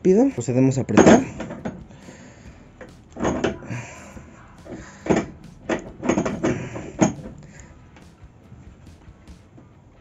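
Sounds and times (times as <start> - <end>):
wrench knocking and scraping on pipe: 1.0 - 2.0, 5.0 - 7.4.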